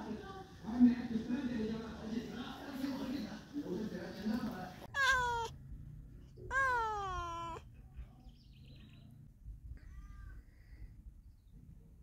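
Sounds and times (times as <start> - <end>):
cat meowing: 4.9 - 5.6, 6.4 - 7.7, 9.8 - 10.5.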